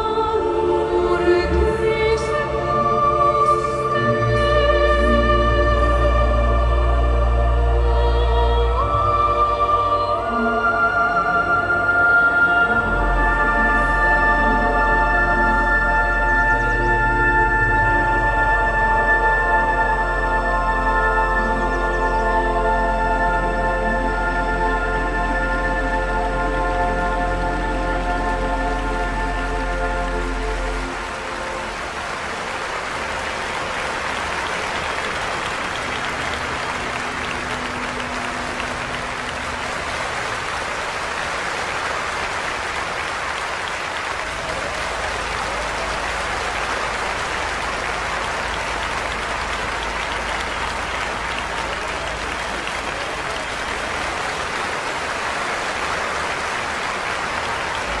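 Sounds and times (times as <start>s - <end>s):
audience applause: 12.8s - 58.0s.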